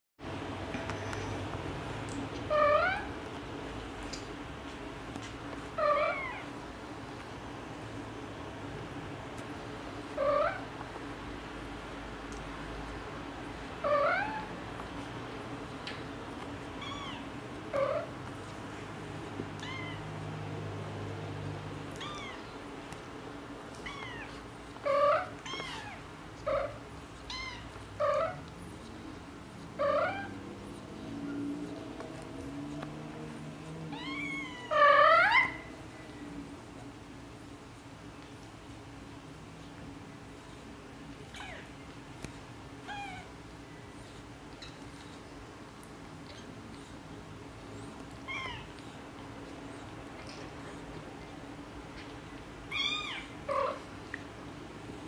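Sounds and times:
steady low hum: 0.2 - 55.0
cat meowing: 19.6 - 20.1, 22.0 - 22.4, 23.8 - 26.7, 33.9 - 35.7, 48.2 - 48.7, 52.7 - 53.8.

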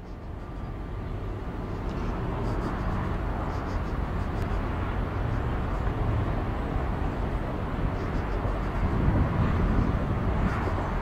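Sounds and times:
diesel locomotive rumble: 0.0 - 11.0.

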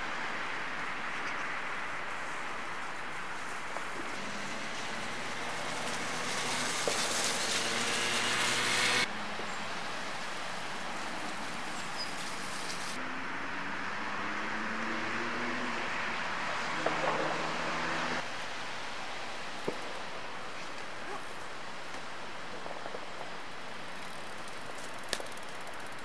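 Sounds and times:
steady outdoor hissing: 0.0 - 26.0.

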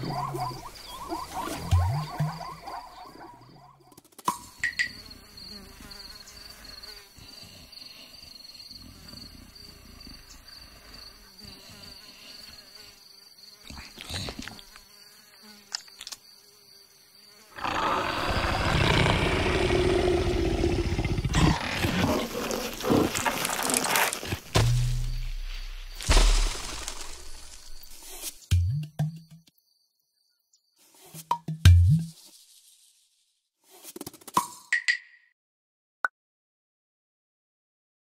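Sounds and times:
insects buzzing: 0.0 - 31.2
leopard growling: 17.6 - 24.4.

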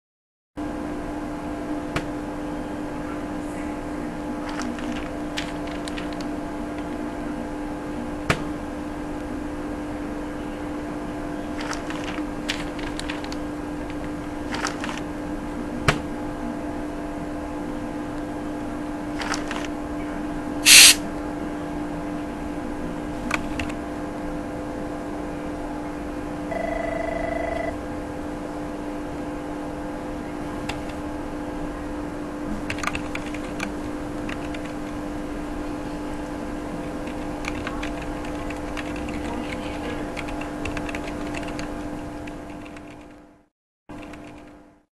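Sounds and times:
steady electrical hum: 0.6 - 44.8
short loud hiss: 20.6 - 21.0.

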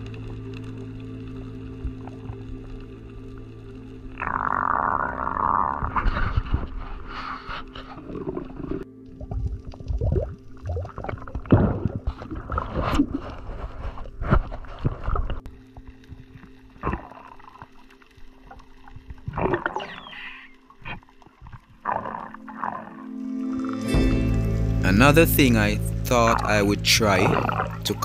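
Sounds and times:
faint steady hum: 0.0 - 4.4
water gurgling and sloshing: 0.0 - 24.8, 26.3 - 28.0.

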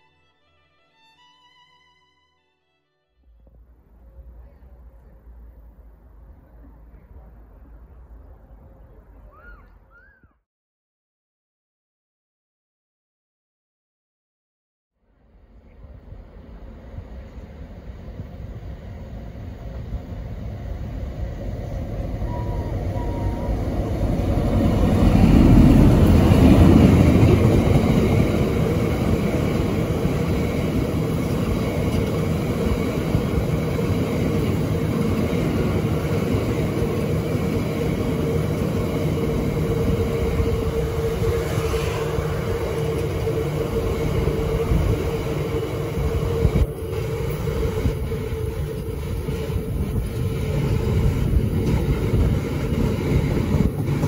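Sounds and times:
diesel locomotive engine: 0.0 - 10.0, 15.0 - 54.0
train wheels rumbling on rail: 15.5 - 54.0
faint tone: 22.2 - 23.9.

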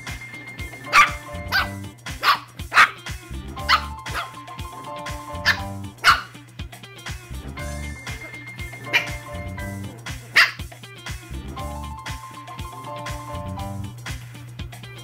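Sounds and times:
background music: 0.0 - 15.0
puppies barking: 0.8 - 6.4, 8.6 - 10.7.

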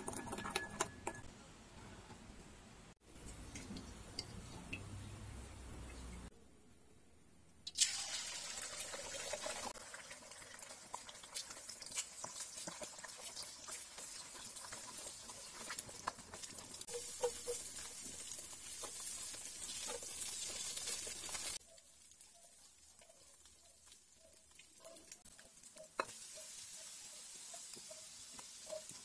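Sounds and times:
eggs sizzling in hot oil: 0.0 - 1.3, 7.7 - 29.0.

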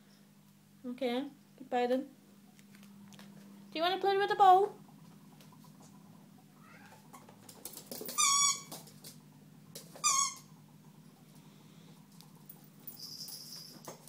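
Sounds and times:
squeaky toy squeaking: 8.1 - 8.7, 10.0 - 10.5.

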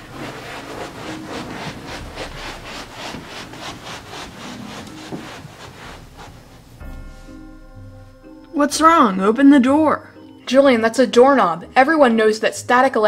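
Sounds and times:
socked feet shuffling on carpet: 0.0 - 7.6.

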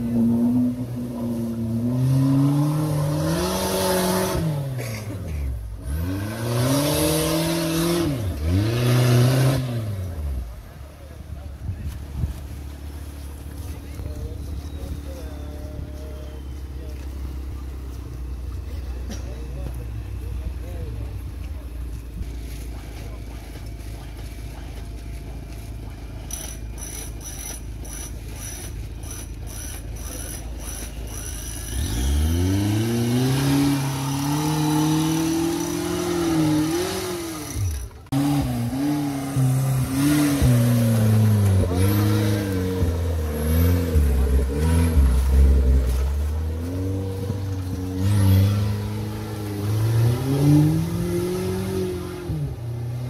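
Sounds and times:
off-road vehicle engine revving: 0.0 - 53.0.

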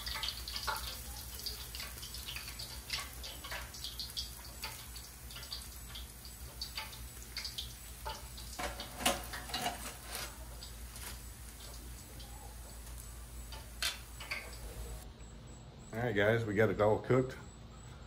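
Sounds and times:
frying oil crackling and sizzling: 0.0 - 15.0
metal skimmer clattering on rack: 8.6 - 10.4.

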